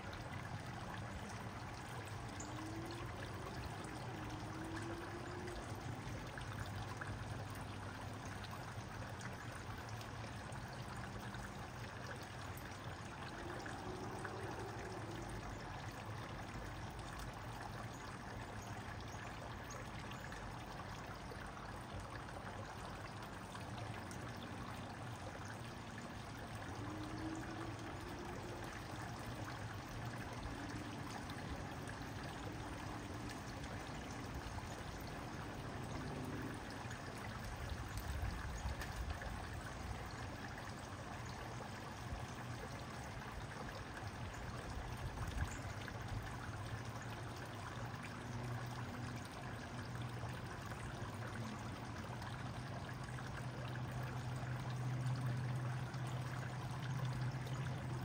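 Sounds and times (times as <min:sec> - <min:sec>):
water trickling and splashing: 0:00.0 - 0:58.0.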